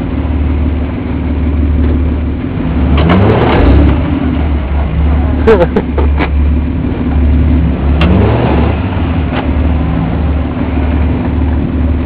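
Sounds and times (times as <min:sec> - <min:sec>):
truck engines revving: 0:00.0 - 0:12.0.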